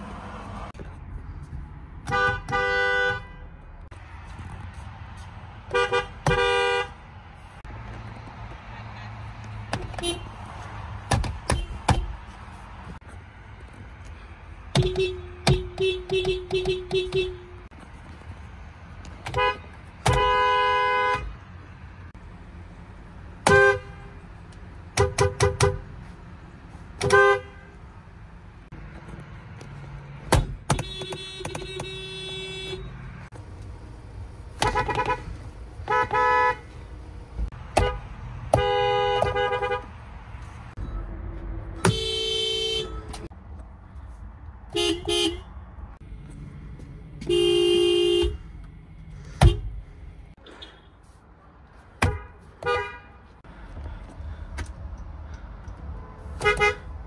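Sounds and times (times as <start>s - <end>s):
car horns honking: 2.0s - 3.7s, 5.7s - 7.0s, 9.8s - 10.4s, 11.3s - 12.2s, 14.7s - 17.7s, 19.2s - 21.4s, 23.3s - 26.0s, 26.9s - 27.9s, 30.2s - 33.3s, 34.5s - 36.8s, 37.6s - 40.0s, 41.7s - 43.3s, 44.7s - 45.6s, 47.2s - 48.5s, 49.2s - 49.8s, 52.0s - 53.4s, 55.9s - 57.0s.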